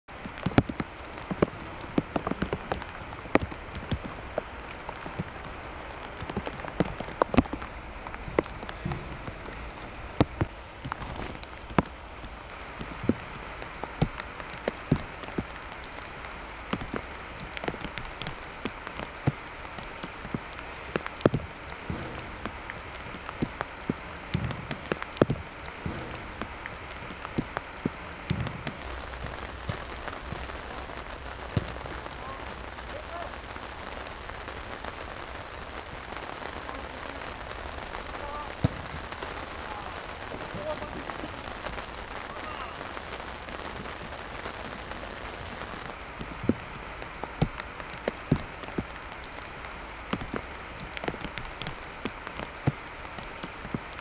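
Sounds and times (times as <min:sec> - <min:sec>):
heavy rain falling: 0:00.0 - 0:54.0
sharp taps and knocks: 0:06.0 - 0:33.1.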